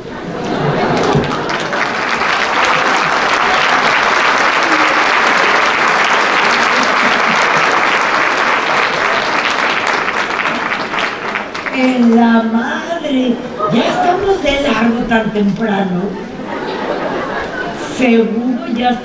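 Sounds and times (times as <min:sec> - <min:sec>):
audience applauding: 0:00.0 - 0:12.2.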